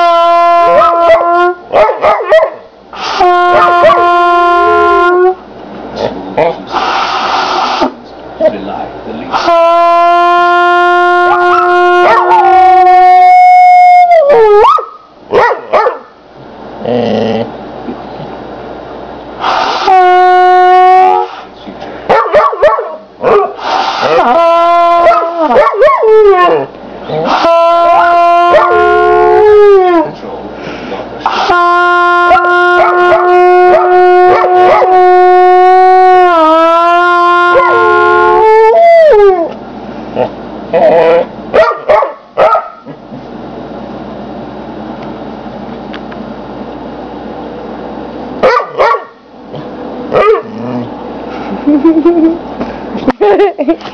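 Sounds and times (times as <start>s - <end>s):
trumpet holding a note: 0.0s - 1.6s, 3.0s - 5.4s, 9.3s - 13.9s, 19.8s - 21.4s, 24.0s - 25.4s, 27.3s - 29.5s, 31.2s - 38.5s
young dog howling and yipping: 0.7s - 2.6s, 11.3s - 16.0s, 22.1s - 30.2s, 32.3s - 39.6s, 40.7s - 42.8s.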